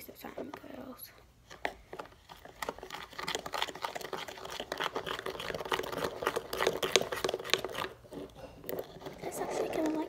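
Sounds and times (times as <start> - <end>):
plastic spoon stirring slime: 0.0 - 10.0.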